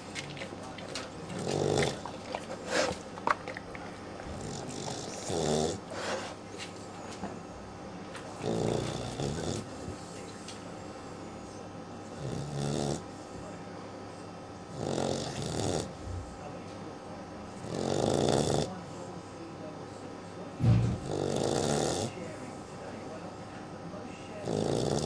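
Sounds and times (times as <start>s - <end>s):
puppy snoring: 1.3s - 3.6s, 4.2s - 6.4s, 8.2s - 10.3s, 11.5s - 13.2s, 14.7s - 16.4s, 17.6s - 18.8s, 20.6s - 22.2s, 24.4s - 25.0s.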